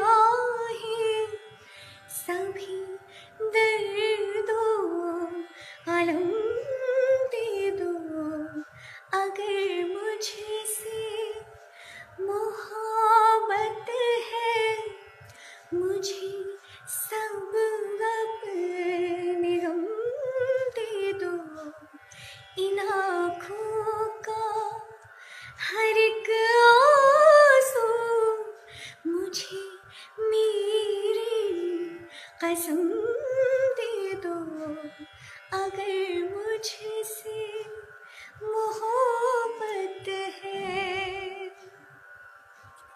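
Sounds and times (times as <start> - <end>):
woman singing slow song: 0.0 - 1.4, 2.1 - 11.4, 12.2 - 15.0, 15.7 - 21.9, 22.6 - 25.0, 25.6 - 41.8
singer breathing: 1.6 - 2.1.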